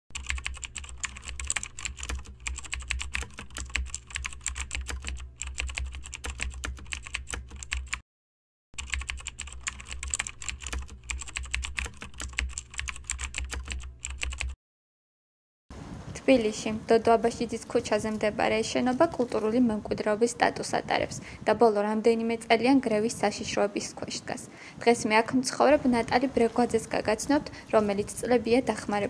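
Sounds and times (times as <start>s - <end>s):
keyboard keystroke clicks: 0.2s - 8.0s.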